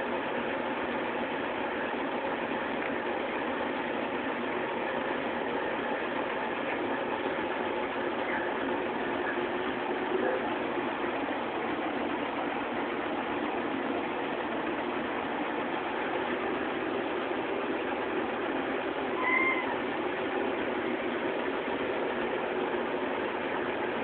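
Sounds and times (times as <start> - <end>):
steady background noise: 0.0 - 24.0
cat meowing: 19.1 - 19.8.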